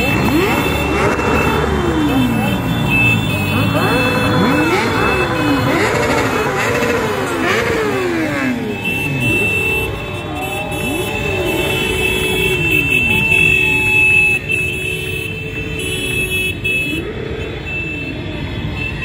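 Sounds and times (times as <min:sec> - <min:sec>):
motorcycle engines revving by: 0:00.0 - 0:19.0.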